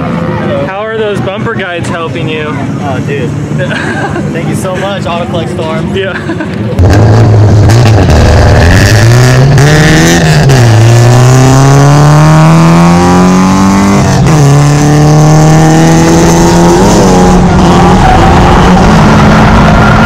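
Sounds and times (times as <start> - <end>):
car engine accelerating hard: 6.6 - 20.0.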